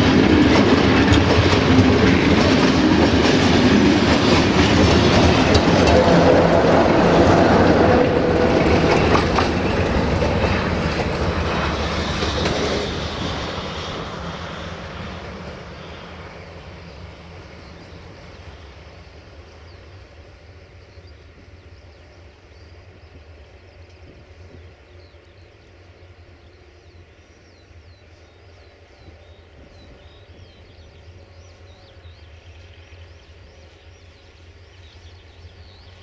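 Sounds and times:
freight train wagons rolling: 0:00.0 - 0:20.3.

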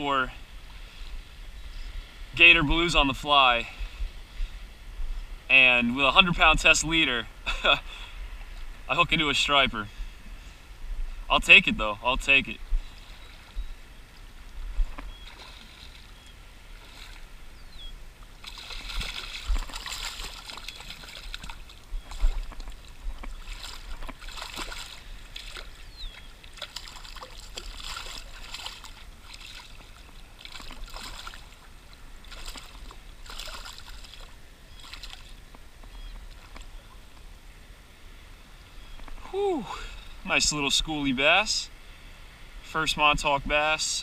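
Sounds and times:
fish splashing in water: 0:15.0 - 0:17.3, 0:18.2 - 0:35.5.

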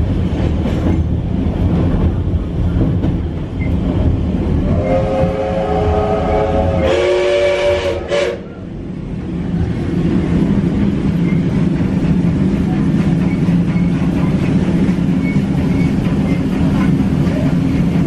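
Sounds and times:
steam train rumbling: 0:00.0 - 0:18.0
steam locomotive whistle: 0:04.6 - 0:08.6.

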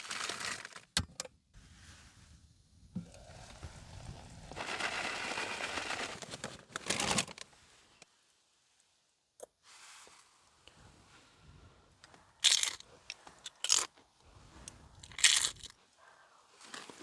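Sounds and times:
rustling and crinkling: 0:03.1 - 0:08.2, 0:16.5 - 0:17.0.

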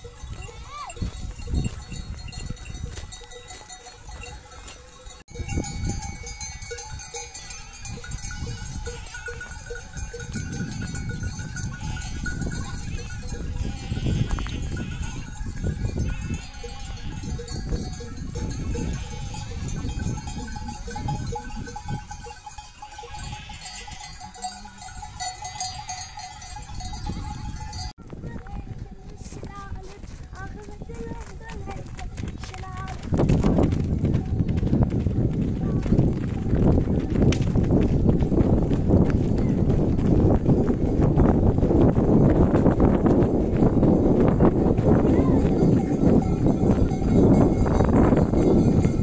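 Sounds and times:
livestock bells clinking: 0:00.0 - 0:28.0, 0:28.9 - 0:34.6, 0:35.4 - 0:49.0
sheep bleating: 0:08.4 - 0:09.6, 0:11.7 - 0:17.6, 0:18.6 - 0:19.5, 0:22.9 - 0:26.3.

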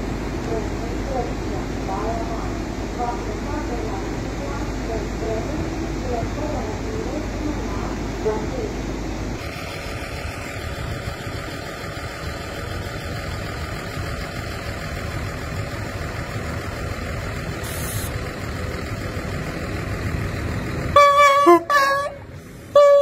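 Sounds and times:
diesel train engine running: 0:00.0 - 0:23.0
loud multi-tone horn: 0:20.9 - 0:23.0.

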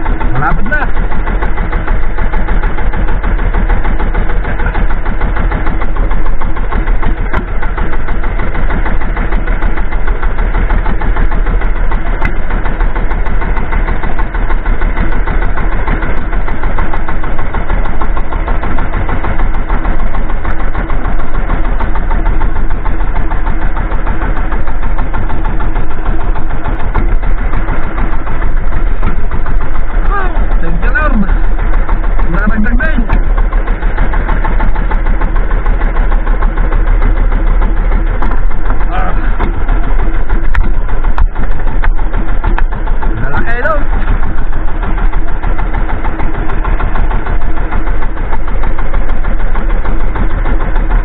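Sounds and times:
boat engine idling: 0:00.0 - 0:51.0.

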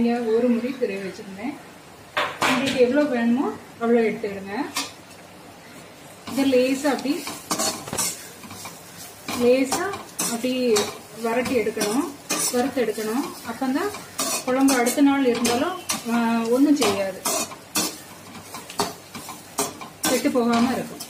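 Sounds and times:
light sizzle: 0:00.0 - 0:21.0
metal spoon scraping pan: 0:06.2 - 0:21.0.

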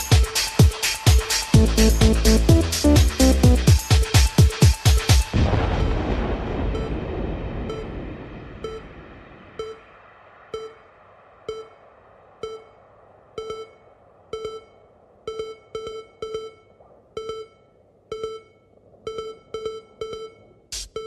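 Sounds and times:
synthesizer blips: 0:00.0 - 0:05.4.

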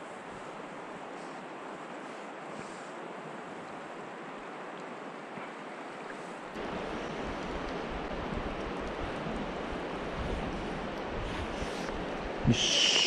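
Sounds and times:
stream water rushing: 0:00.1 - 0:13.0.

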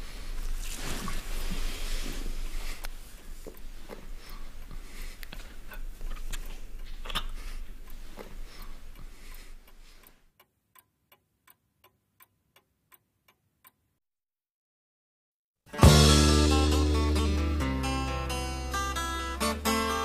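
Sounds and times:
faint room hiss: 0:00.0 - 0:14.0
clock ticking: 0:02.8 - 0:13.8.

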